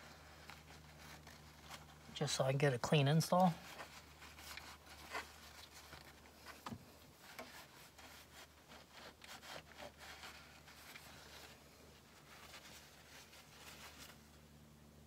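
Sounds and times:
paper towel rubbing: 0.0 - 6.6, 7.2 - 14.4.

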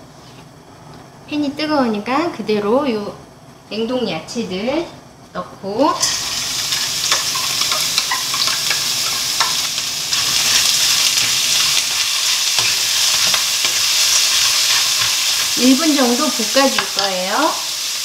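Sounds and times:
vegetables sizzling in oil: 5.8 - 18.0.

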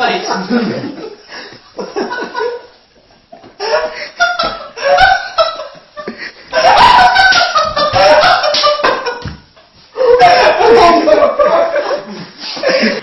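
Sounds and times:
laughter: 0.3 - 2.8, 3.4 - 13.0.

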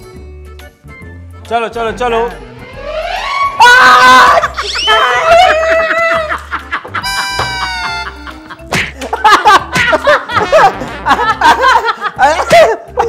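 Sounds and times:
steady sound effect tone: 2.3 - 4.2
people laughing and shrieking: 2.8 - 8.4
sharp slap smack: 8.7 - 10.0.

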